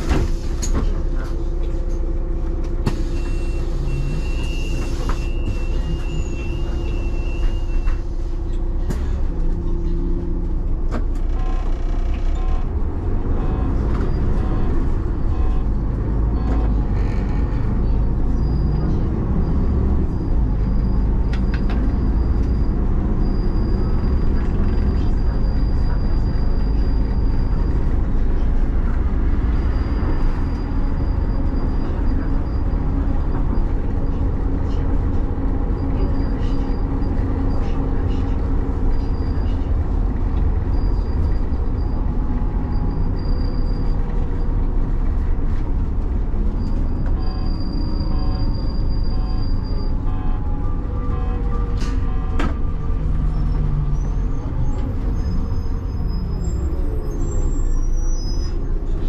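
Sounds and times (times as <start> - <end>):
bus engine and road rumble: 0.0 - 59.0.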